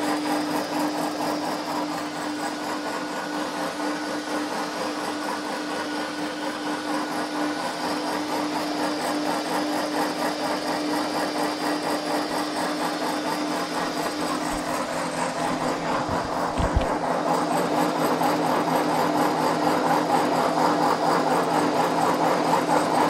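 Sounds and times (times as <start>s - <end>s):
pellet mill motor humming: 0.0s - 23.0s
dense mechanical noise: 13.0s - 17.4s.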